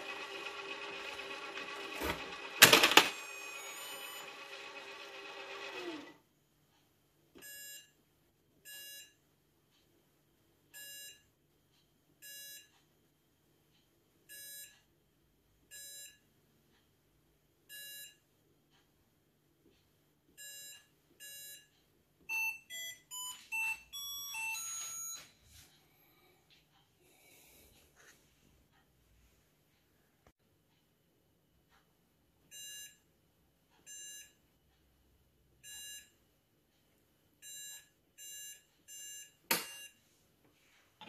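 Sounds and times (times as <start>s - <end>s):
mechanical whirr: 0.0s - 6.2s.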